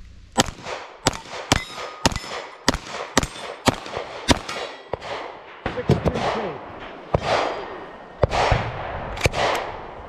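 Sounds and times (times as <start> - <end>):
pistol shots: 0.4 - 9.9
bullets clanging on steel plates: 1.1 - 6.2.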